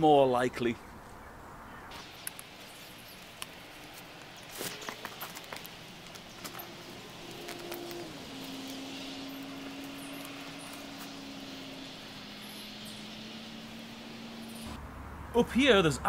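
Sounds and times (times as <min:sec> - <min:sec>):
distant engine drone: 0:01.8 - 0:16.0
scuffs on tree bark: 0:01.9 - 0:11.5.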